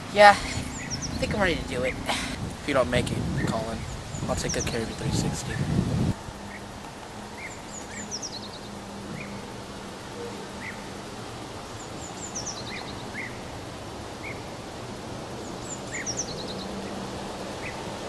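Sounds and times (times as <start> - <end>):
steady background noise: 0.0 - 18.0
bird singing high falling song: 0.5 - 1.4, 3.4 - 5.4, 7.3 - 9.6, 11.7 - 13.5, 14.2 - 14.6, 15.4 - 17.0
bird chirps: 0.6 - 1.4, 7.4 - 9.5, 11.8 - 13.4.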